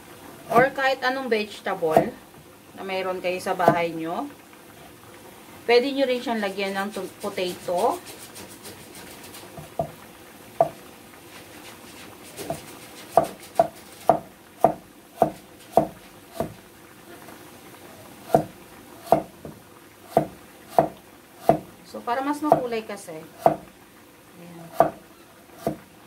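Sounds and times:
knife knocking on cutting board: 12.4s - 16.6s.

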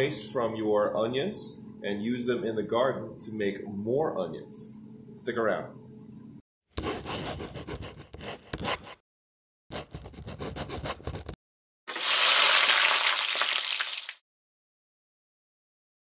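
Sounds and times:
pen scratching on paper: 6.8s - 9.0s, 9.7s - 11.4s.

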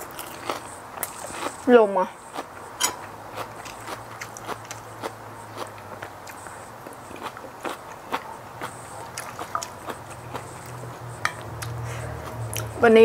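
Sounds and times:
chewing and mouth sounds: 0.0s - 12.8s
metal fork clinking in dish: 2.8s - 3.1s.

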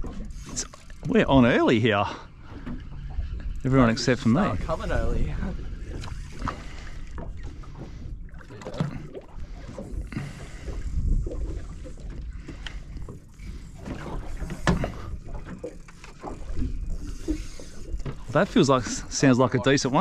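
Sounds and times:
water lapping against hull: 0.0s - 20.0s
wind on microphone: 9.4s - 12.6s.

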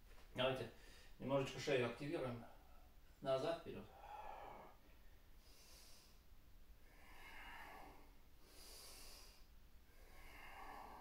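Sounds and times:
man breathing slowly: 0.8s - 1.2s, 3.9s - 11.0s.

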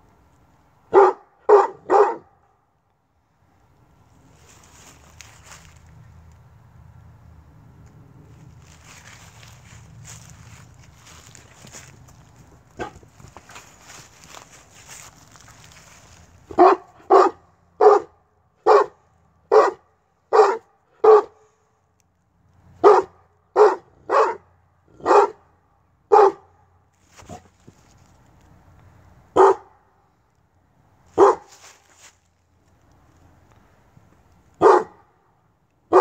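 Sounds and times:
dog barking: 0.9s - 2.5s, 16.5s - 21.4s, 22.8s - 25.4s, 26.1s - 26.5s, 29.3s - 29.8s, 31.2s - 31.6s, 34.6s - 35.1s.

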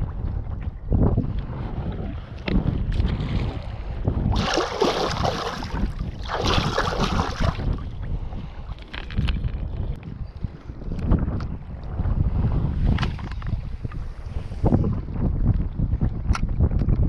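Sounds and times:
wind buffeting microphone: 0.0s - 17.0s
water splashing: 4.3s - 7.8s.

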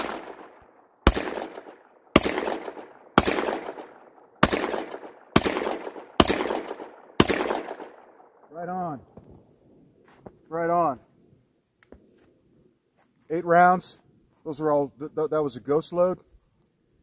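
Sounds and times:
shotgun shots with echo: 0.0s - 8.9s.

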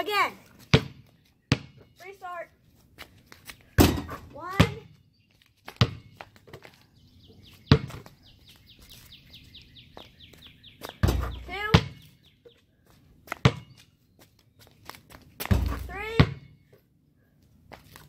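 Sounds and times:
basketball bouncing: 0.6s - 1.9s, 3.8s - 5.0s, 5.7s - 6.6s, 7.7s - 8.1s, 10.9s - 12.1s, 13.3s - 13.8s, 15.4s - 16.5s
bird chirping: 4.9s - 12.8s.

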